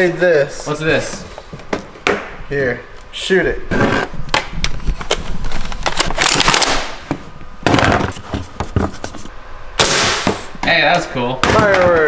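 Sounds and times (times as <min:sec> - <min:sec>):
sharp bang: 0:09.8 - 0:10.6.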